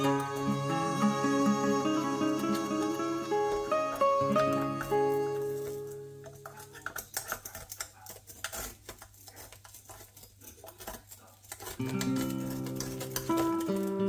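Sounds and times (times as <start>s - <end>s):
guitar music: 0.0s - 6.8s, 11.8s - 14.0s
metal tongs clicking on waffle iron: 5.6s - 14.0s.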